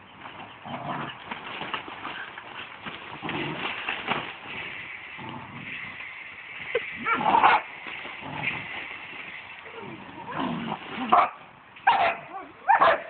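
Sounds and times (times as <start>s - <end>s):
dogs barking and yipping: 6.7s - 7.8s, 11.1s - 13.0s.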